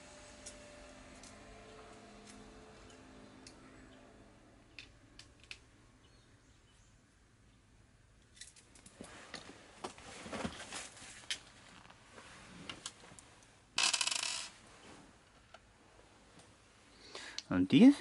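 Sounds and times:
small metal parts clicking and scraping: 8.3s - 8.9s, 13.8s - 14.5s.

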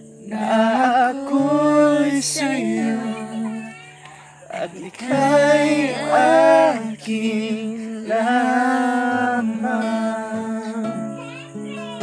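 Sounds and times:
voices singing held notes: 0.0s - 12.0s.

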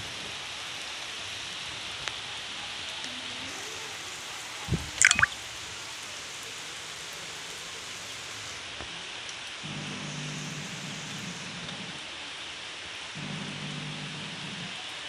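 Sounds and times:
steady rain falling: 5.4s - 15.0s.

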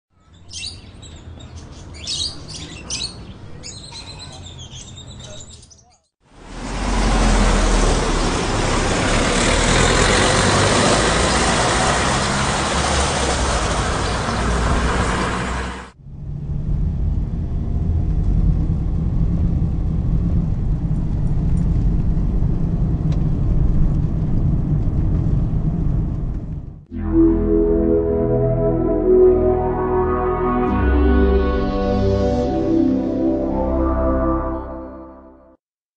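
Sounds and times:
road traffic rush: 6.2s - 26.8s
car engine and tyre rumble: 6.3s - 26.8s.

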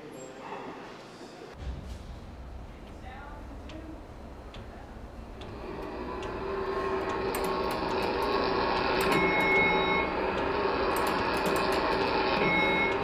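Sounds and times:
machine hum: 1.6s - 13.0s
scattered clicks: 7.0s - 9.6s.

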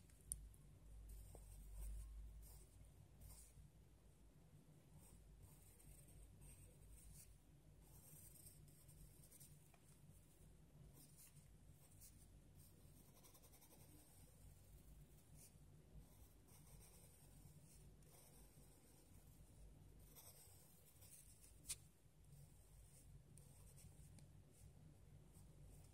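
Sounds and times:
pencil scratching on paper: 5.0s - 9.6s, 10.9s - 21.8s.

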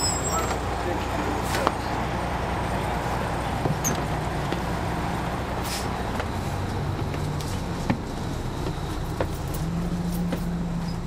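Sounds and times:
diesel bus engine running: 0.0s - 11.0s.

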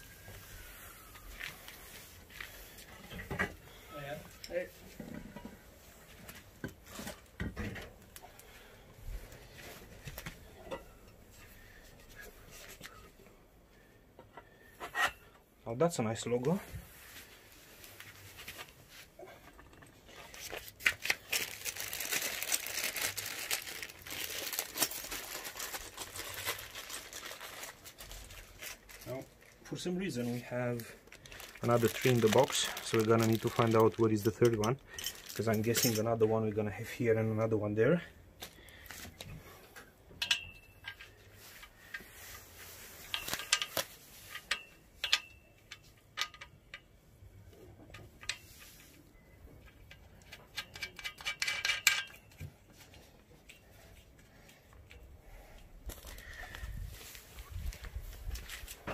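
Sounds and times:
plastic packaging crinkling: 20.2s - 36.1s
fittings clicking on metal tubes: 40.1s - 42.1s, 49.6s - 52.5s.

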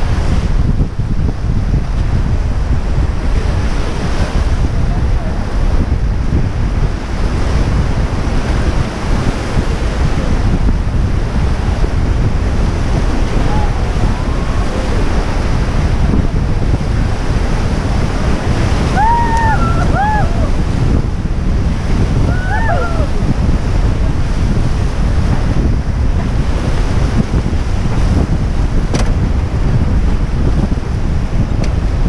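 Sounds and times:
wind buffeting microphone: 0.0s - 32.0s
whitewater rapids roaring: 7.0s - 28.3s.

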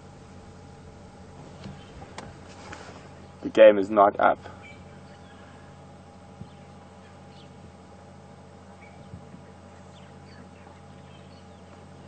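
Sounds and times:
low hum: 0.0s - 12.0s
faint bird chirps: 4.5s - 7.7s, 8.6s - 12.0s.

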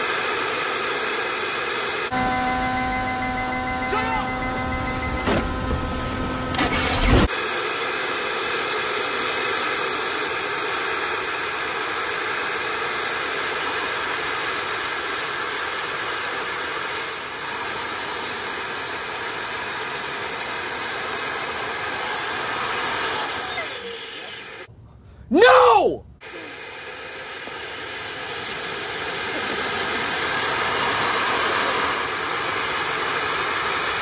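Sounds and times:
jet-like rush with turbo whine: 0.0s - 24.7s, 26.2s - 34.0s.

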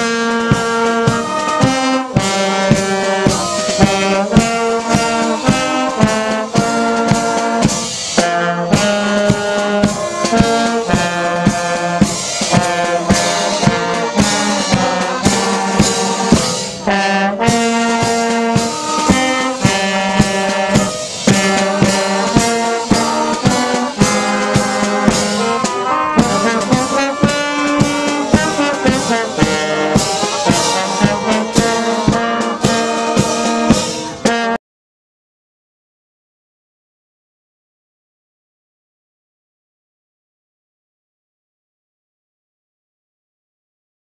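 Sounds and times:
steady beat: 0.0s - 34.6s
wind band playing a tune: 0.0s - 34.6s.

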